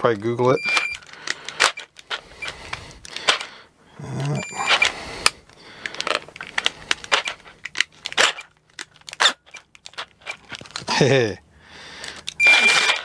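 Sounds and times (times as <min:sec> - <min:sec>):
small hardware clicking and rattling: 0:04.6 - 0:10.9, 0:12.0 - 0:13.0.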